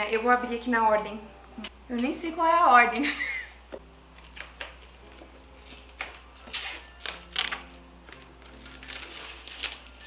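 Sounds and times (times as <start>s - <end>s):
plastic shrink-wrap crinkling: 4.2s - 10.0s.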